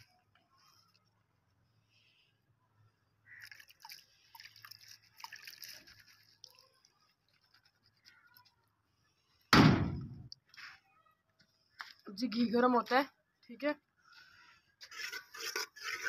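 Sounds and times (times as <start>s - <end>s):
dripping water: 3.2s - 7.9s
wet rustling and splashing: 3.3s - 8.5s.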